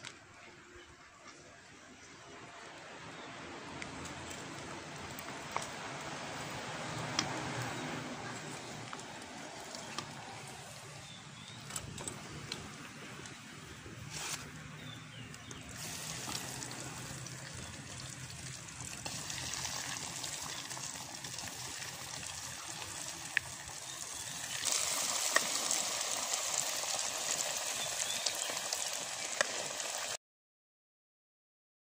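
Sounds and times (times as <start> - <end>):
fritters sizzling in hot oil: 3.9 - 11.5, 12.5 - 30.2.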